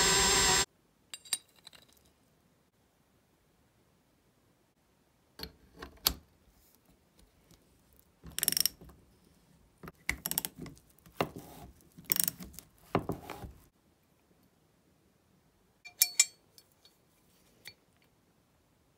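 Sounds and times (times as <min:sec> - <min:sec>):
ratchet wrench clicking: 0:08.4 - 0:08.8, 0:12.1 - 0:12.3.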